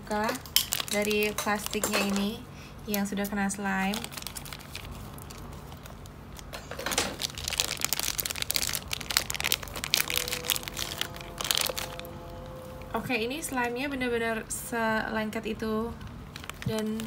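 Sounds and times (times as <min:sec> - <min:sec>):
plastic bag crinkling: 0:00.1 - 0:12.4, 0:16.2 - 0:17.0.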